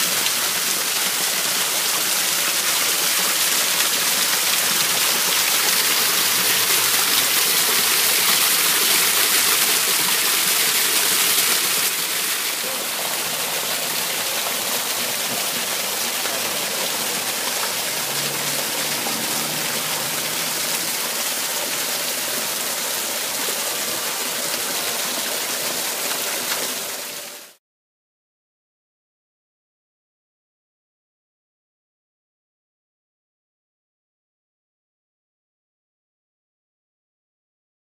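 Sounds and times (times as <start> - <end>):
waterfall splashing into a pool: 0.0 - 27.6.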